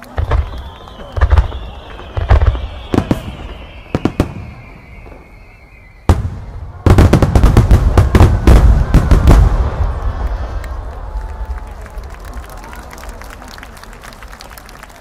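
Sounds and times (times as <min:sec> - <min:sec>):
firework barrage: 0:00.0 - 0:12.0
long falling whistle: 0:00.1 - 0:06.8.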